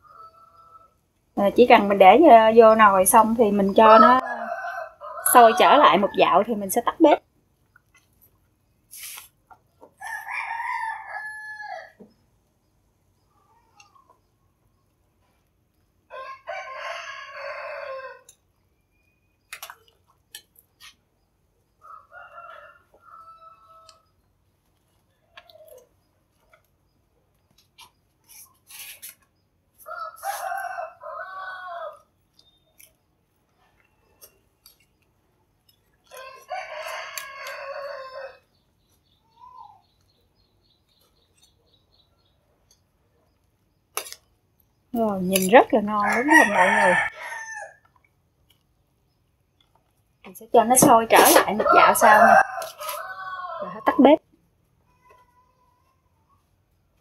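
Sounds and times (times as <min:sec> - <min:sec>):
rooster crowing: 0:03.8 - 0:06.2, 0:10.0 - 0:12.0, 0:16.1 - 0:18.3, 0:21.8 - 0:24.0, 0:29.9 - 0:32.0, 0:36.1 - 0:38.4, 0:46.0 - 0:47.9, 0:51.5 - 0:54.0.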